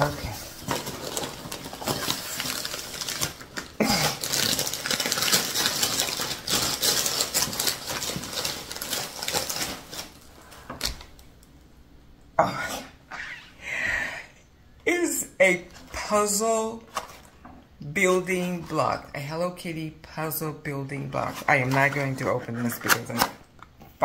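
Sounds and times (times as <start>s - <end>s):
wrapping paper crinkling and tearing: 0.0s - 11.2s.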